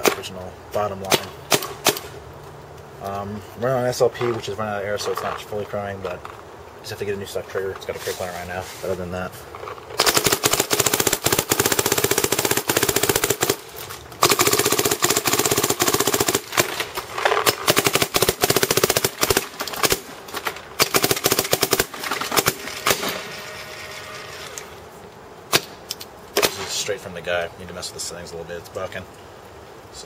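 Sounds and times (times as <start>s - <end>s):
paintball marker firing rapidly: 10.0s - 13.6s, 17.4s - 20.1s.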